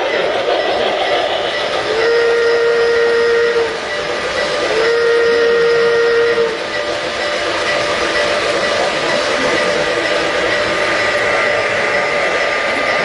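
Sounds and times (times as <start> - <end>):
model trains running on track: 0.0 - 13.0
model train whistle: 1.9 - 3.8, 4.6 - 6.6.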